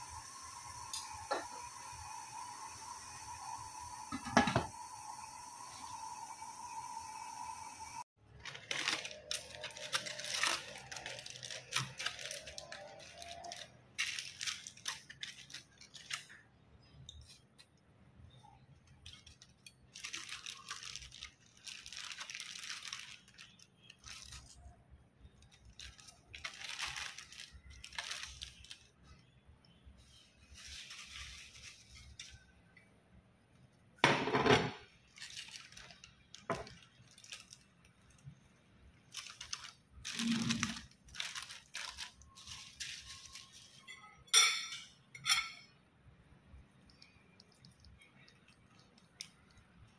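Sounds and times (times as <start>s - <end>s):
foil crinkling: 8.2s - 16.4s, 18.9s - 29.2s, 30.1s - 32.4s, 35.0s - 43.8s.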